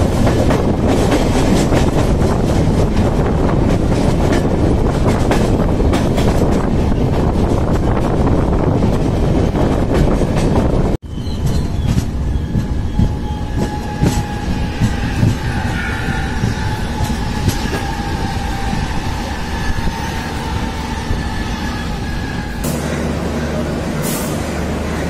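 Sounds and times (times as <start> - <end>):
train rumbling roar: 0.0 - 25.0
high-pitched wheel squeal: 11.1 - 22.7
train wheels clacking over rail joints: 11.3 - 22.8.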